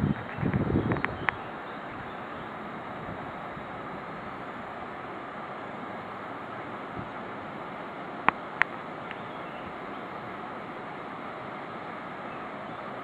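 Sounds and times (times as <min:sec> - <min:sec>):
water rushing: 0:00.0 - 0:13.0.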